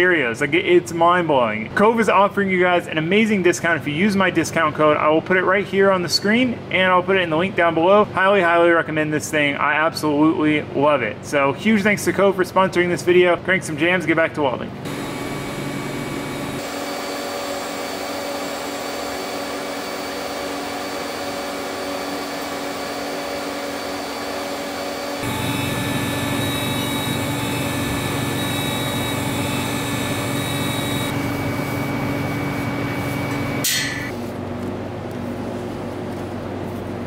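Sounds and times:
welding arc hiss and hum: 0:14.9 - 0:34.4.

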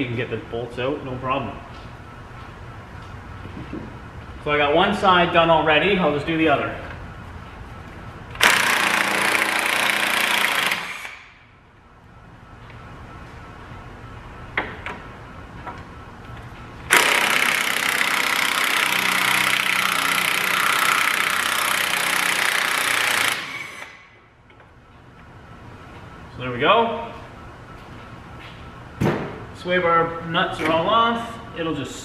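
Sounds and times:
power wrench spinning: 0:08.4 - 0:11.2, 0:16.9 - 0:24.0.

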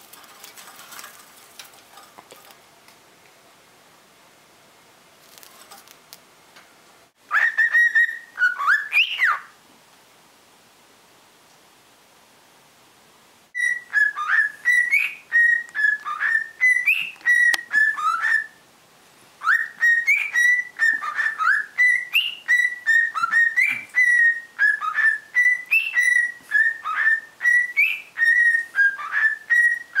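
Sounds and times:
cockatiel whistling: 0:07.3 - 0:09.5, 0:13.6 - 0:18.6, 0:19.4 - 0:30.0.

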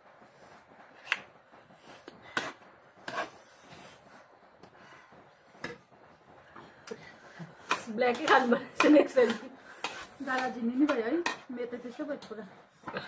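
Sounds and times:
faint room hiss: 0:00.0 - 0:13.0
cutlery scraping on plates: 0:07.6 - 0:11.5.

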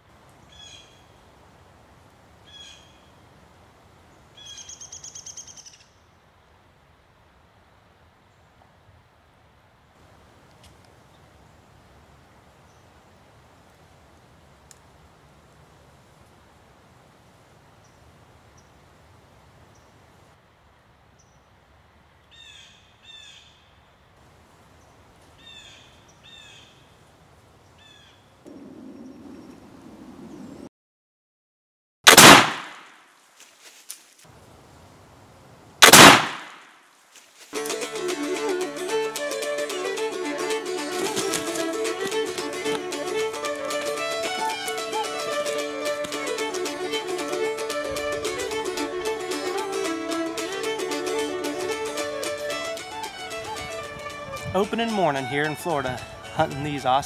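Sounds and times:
short high bird calls: 0:00.5 - 0:01.2, 0:02.5 - 0:03.2, 0:04.4 - 0:06.0
rapid rattling bird call: 0:37.6 - 0:54.3.

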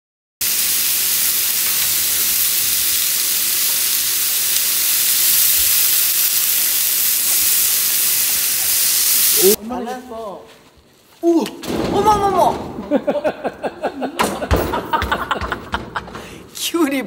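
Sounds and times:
pork sizzling on grill pan: 0:00.4 - 0:09.6.

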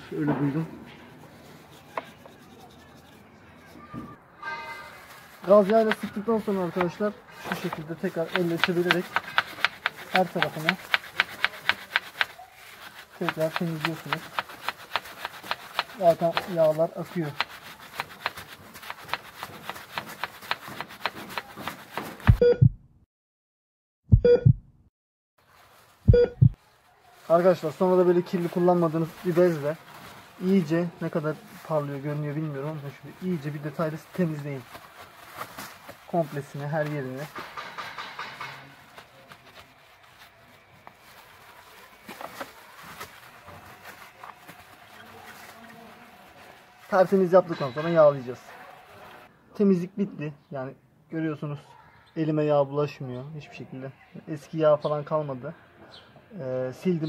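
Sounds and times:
cloth rubbing on chain: 0:01.0 - 0:03.9, 0:04.7 - 0:22.4, 0:27.3 - 0:49.3
short beeps: 0:22.4 - 0:22.8, 0:24.1 - 0:24.6, 0:26.1 - 0:26.5.

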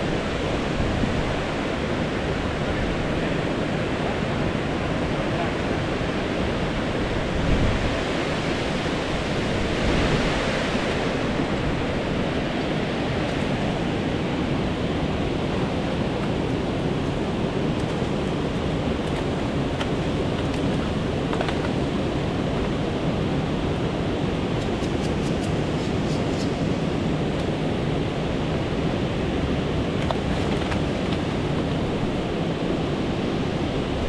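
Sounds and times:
river water rushing: 0:00.0 - 0:34.0.

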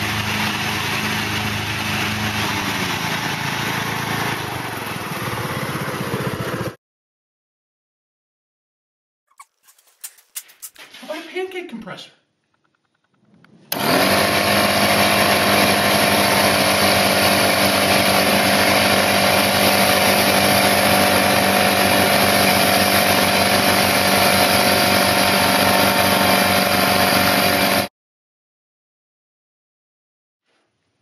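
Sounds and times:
air compressor running: 0:00.0 - 0:06.7, 0:13.7 - 0:27.9.

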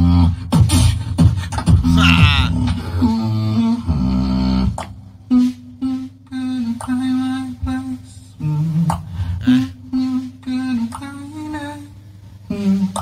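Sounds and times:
person humming into microphone: 0:01.9 - 0:02.7, 0:09.4 - 0:09.8.

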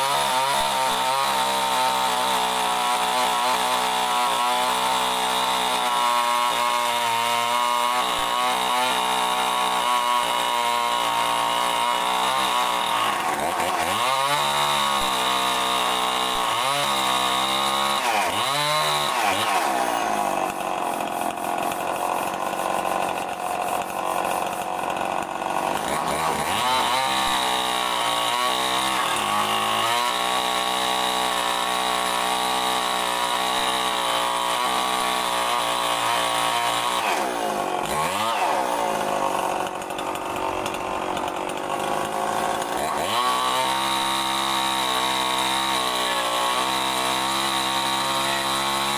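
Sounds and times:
chainsaw cutting wood: 0:00.0 - 0:48.9.

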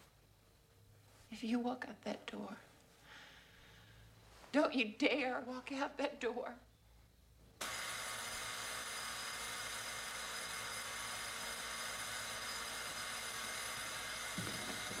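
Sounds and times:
low knock: 0:14.4 - 0:15.0.

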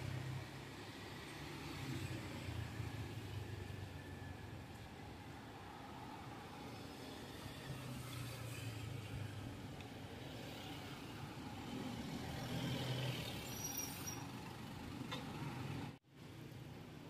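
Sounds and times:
brief high squeak: 0:13.4 - 0:14.4.

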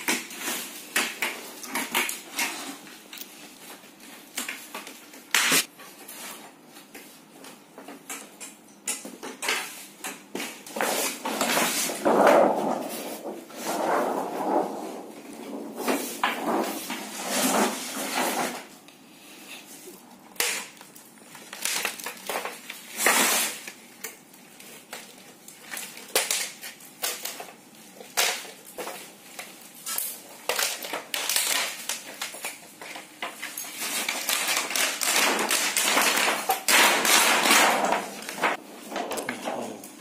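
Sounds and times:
plastic sheet crinkling: 0:20.4 - 0:40.0.

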